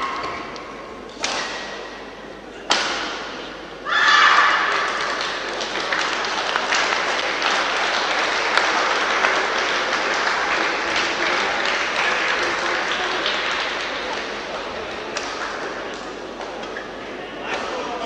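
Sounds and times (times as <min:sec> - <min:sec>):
crowd applauding: 0:04.5 - 0:16.3.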